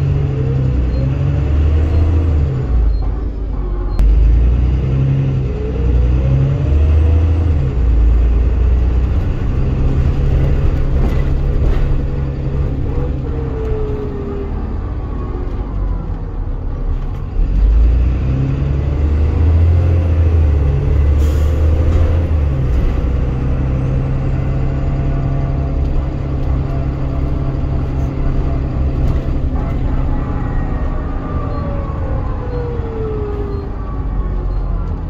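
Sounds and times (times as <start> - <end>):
bus engine droning: 0.0 - 35.0.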